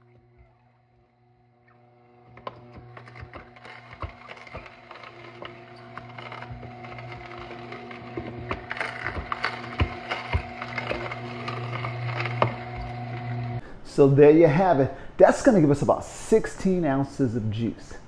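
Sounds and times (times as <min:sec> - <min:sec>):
juicer motor hum: 0:00.0 - 0:13.6
crunching of carrots and fruit: 0:03.0 - 0:12.6.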